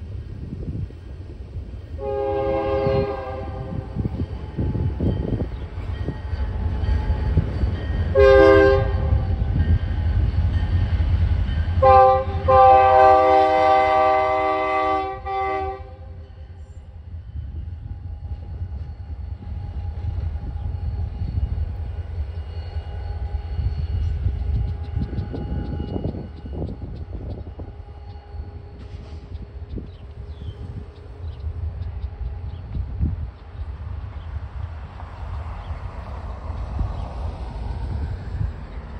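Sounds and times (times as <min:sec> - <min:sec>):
diesel locomotive horn: 0:01.9 - 0:10.2, 0:11.7 - 0:17.0, 0:22.6 - 0:31.4.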